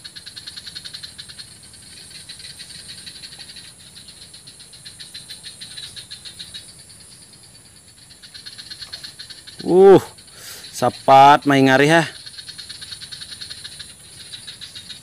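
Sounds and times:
steady high-pitched hiss: 0.0 - 15.0
rapid pulsed creature call: 8.3 - 15.0.

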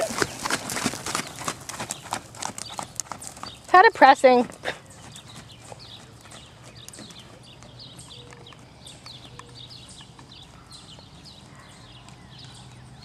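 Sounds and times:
horse hoofbeats on sand: 0.0 - 13.0.

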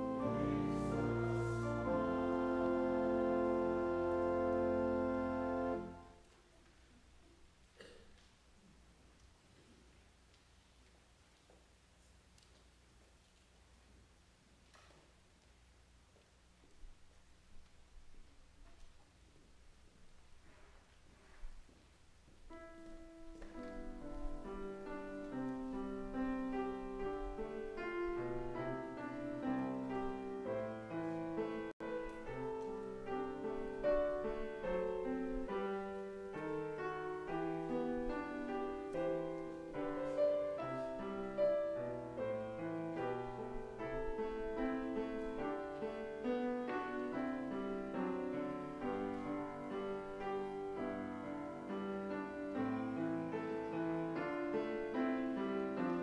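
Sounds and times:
grand piano playing slow chords: 0.0 - 6.2, 22.4 - 56.0.

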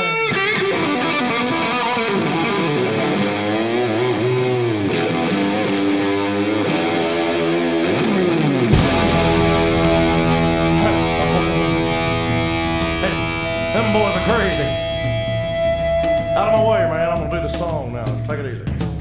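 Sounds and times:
distorted electric guitar lead: 0.0 - 19.0.

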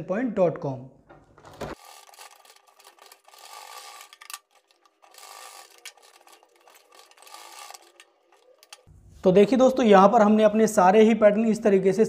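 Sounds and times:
sewing machine clicks: 1.7 - 8.9
sewing machine stitching: 1.7 - 8.9.

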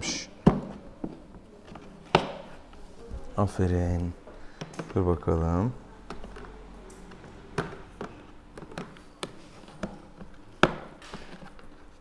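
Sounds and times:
plastic carrier clicks and knocks: 10.6 - 11.3.

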